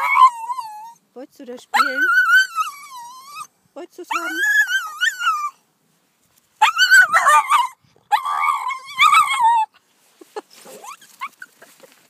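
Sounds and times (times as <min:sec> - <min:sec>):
dog whining: 0:00.0 - 0:01.0, 0:01.8 - 0:03.5, 0:04.1 - 0:05.6, 0:06.6 - 0:09.7.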